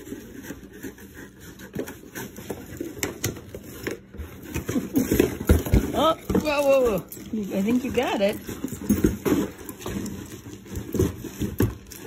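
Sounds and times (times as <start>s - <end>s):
cardboard box scraping and crinkling: 0.0s - 12.0s.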